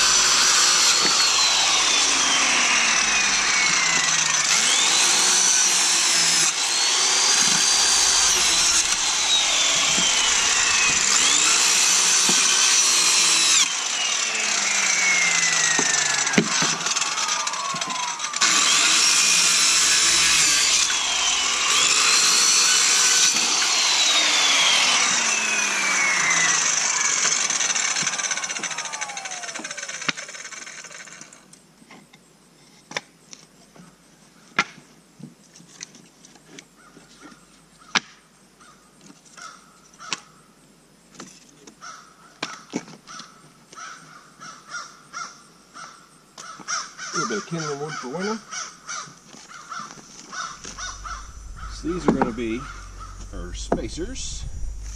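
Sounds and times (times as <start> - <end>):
circular saw motor whine: 0.0 - 31.4, 50.1 - 54.9.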